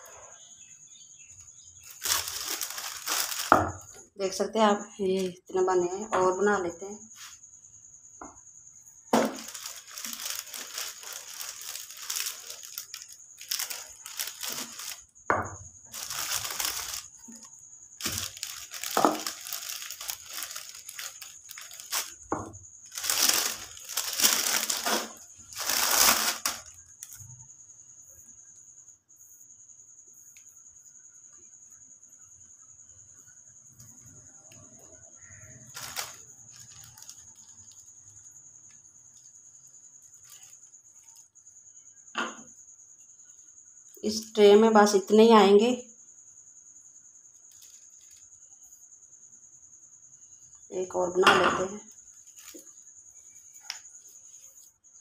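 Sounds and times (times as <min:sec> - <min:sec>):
plastic sheet crinkling: 0:01.8 - 0:04.0, 0:09.2 - 0:15.1, 0:15.9 - 0:27.2, 0:35.7 - 0:37.8, 0:40.2 - 0:41.2, 0:47.5 - 0:48.2, 0:52.2 - 0:52.7.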